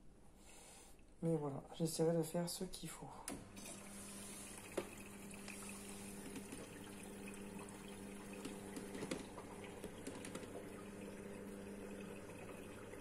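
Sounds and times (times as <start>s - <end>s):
washing machine hum: 3.1s - 13.0s
water running into drum: 3.5s - 13.0s.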